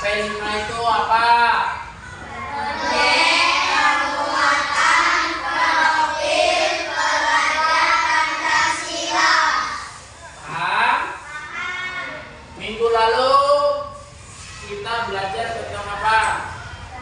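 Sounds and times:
children singing in unison: 0:02.4 - 0:09.9.

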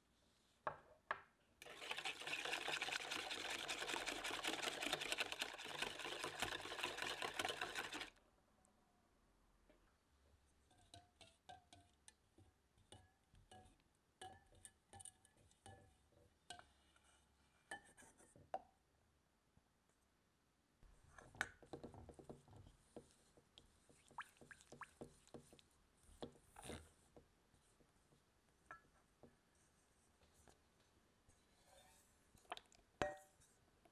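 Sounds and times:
whisk clinking against ceramic bowl: 0:01.7 - 0:08.1.

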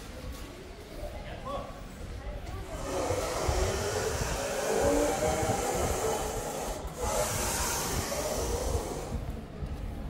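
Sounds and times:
faint voices of people: 0:00.0 - 0:10.0
low uneven rumble: 0:02.1 - 0:10.0
steady hiss: 0:02.8 - 0:09.2.

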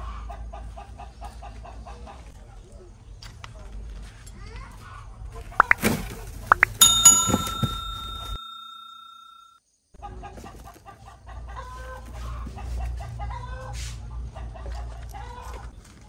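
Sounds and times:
chickens clucking: 0:00.0 - 0:02.4, 0:10.0 - 0:16.0
loud ringing ding: 0:06.5 - 0:09.5.

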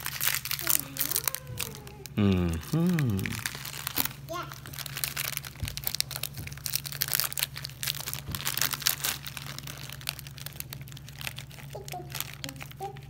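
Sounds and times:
foil wrapper crinkling: 0:00.0 - 0:13.0.

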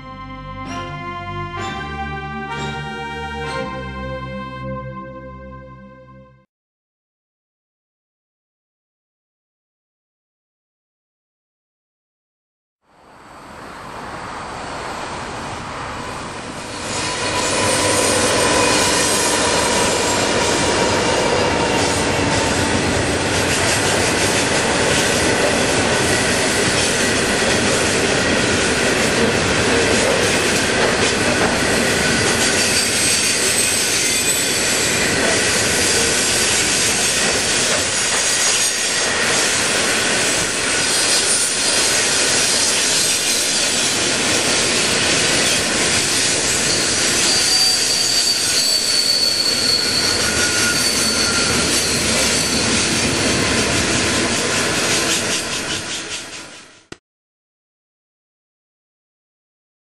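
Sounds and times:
train wheels rumbling on rail: 0:13.8 - 0:56.9
wheel squeal: 0:32.2 - 0:43.8, 0:45.4 - 0:53.2.

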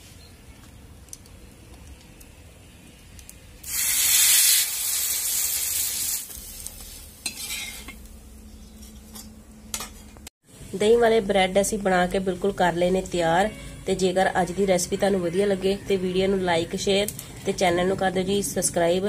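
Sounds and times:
bread sizzling on hot griddle: 0:03.6 - 0:08.2.

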